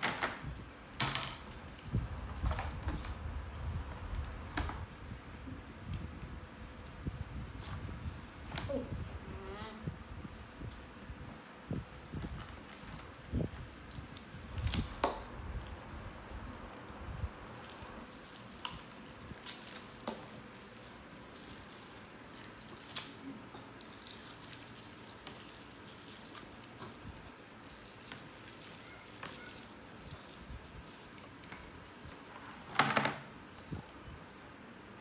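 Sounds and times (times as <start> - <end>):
plastic wrapper crinkling: 16.6 - 32.3.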